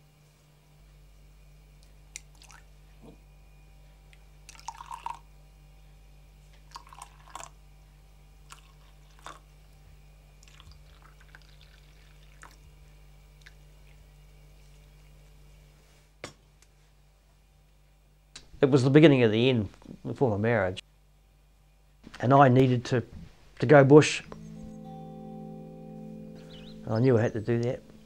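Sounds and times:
low steady hum: 0:00.0 - 0:28.0
tea trickling into mug: 0:02.2 - 0:02.6, 0:04.5 - 0:05.2, 0:06.7 - 0:07.6, 0:08.5 - 0:09.5, 0:10.4 - 0:12.7.

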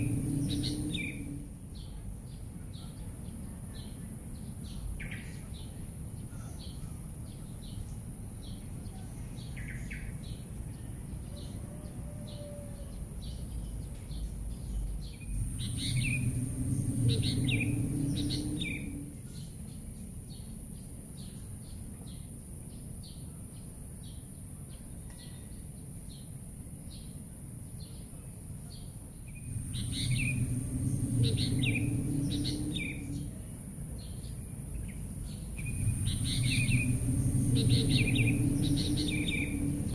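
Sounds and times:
low rumble: 0:00.0 - 0:02.4, 0:13.5 - 0:19.8, 0:29.2 - 0:39.9
steady high hum: 0:00.0 - 0:05.0, 0:14.3 - 0:21.1, 0:29.0 - 0:39.9
birds chirping: 0:00.0 - 0:10.9, 0:13.2 - 0:20.6, 0:28.7 - 0:39.9.

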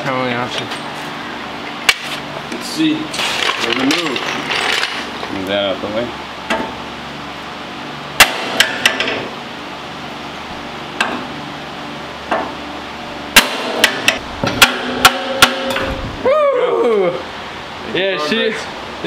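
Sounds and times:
hammer striking metal: 0:08.2 - 0:09.2, 0:13.4 - 0:16.0.

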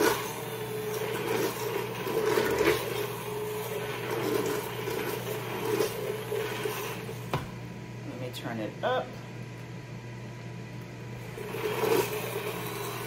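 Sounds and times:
thick soup churning: 0:00.0 - 0:07.3, 0:11.2 - 0:13.0
immersion blender motor hum: 0:00.0 - 0:07.5, 0:10.9 - 0:13.0.

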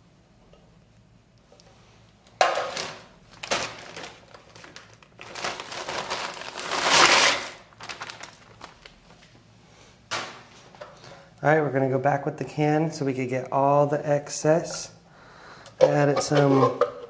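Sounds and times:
plastic bag crinkling: 0:02.6 - 0:09.2
sudden crackle: 0:03.3 - 0:09.0.

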